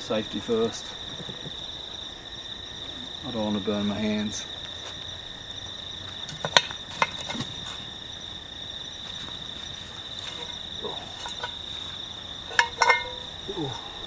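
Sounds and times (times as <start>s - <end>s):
crickets chirring: 0.0s - 14.0s
metal lid clinking: 11.2s - 11.7s, 12.5s - 13.3s.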